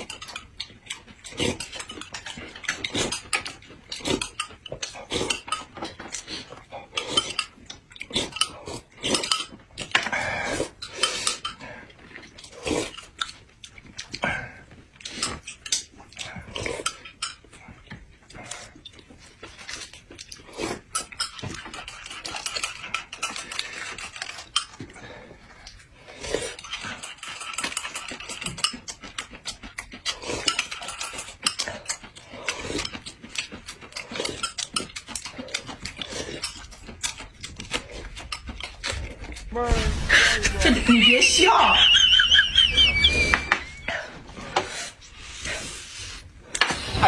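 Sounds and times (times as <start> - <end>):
chewing: 0.0 - 39.6
slurping from a spoon: 1.2 - 13.4, 18.2 - 29.2, 29.8 - 39.4, 43.0 - 47.0.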